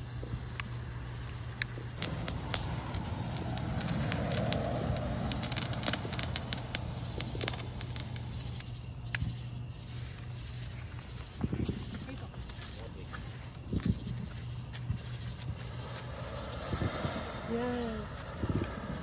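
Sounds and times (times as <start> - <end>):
firework fountain hissing: 0.0 - 8.6, 15.0 - 19.0
sharp firework crackles: 0.0 - 8.6, 14.9 - 19.0.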